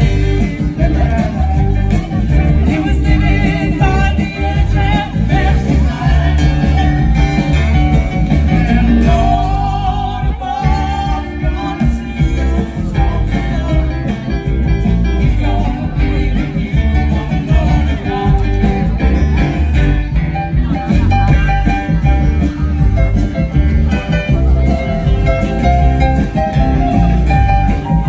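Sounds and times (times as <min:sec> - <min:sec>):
live band playing amplified music: 0:00.0 - 0:28.0.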